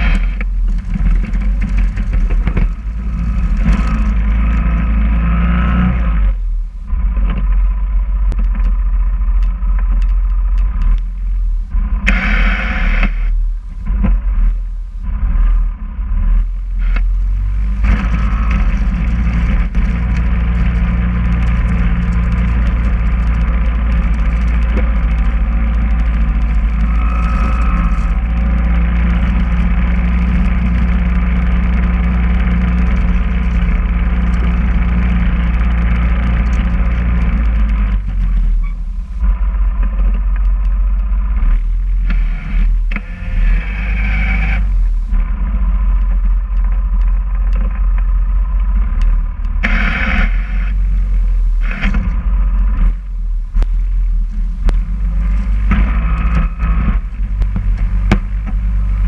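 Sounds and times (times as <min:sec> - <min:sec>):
plow blade clattering and scraping: 0:00.0 - 0:04.9
atv engine running under load: 0:00.0 - 0:59.0.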